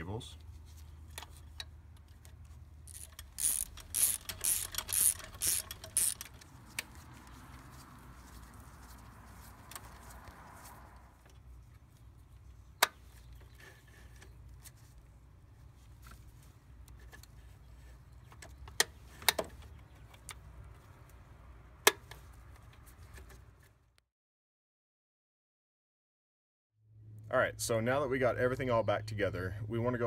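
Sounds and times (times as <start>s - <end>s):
socket ratchet clicking: 2.9s - 6.4s.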